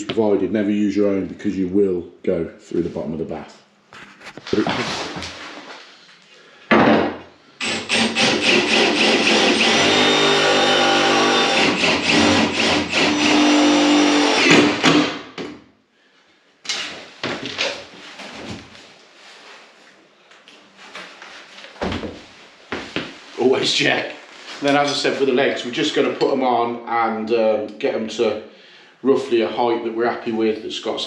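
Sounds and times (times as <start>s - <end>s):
cordless drill driving screws: 7.6s - 15.0s.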